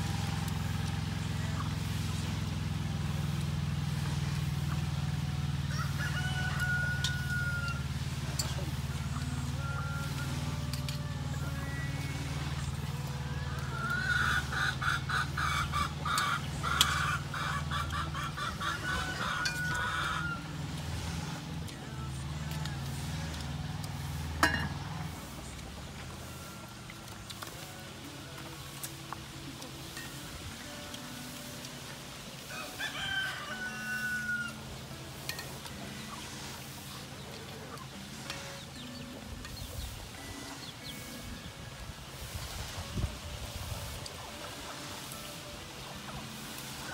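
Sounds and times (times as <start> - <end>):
rooster crowing: 5.6 - 8.0, 18.9 - 20.4, 32.5 - 34.7
chicken clucking: 12.6 - 20.5.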